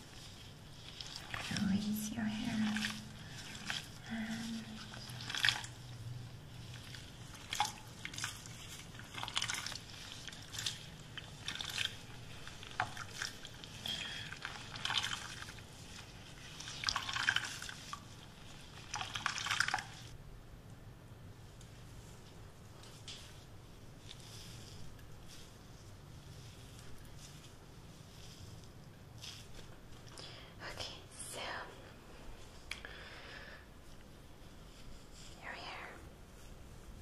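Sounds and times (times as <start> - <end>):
hands squelching through wet hair: 0.0 - 20.2, 21.6 - 30.3.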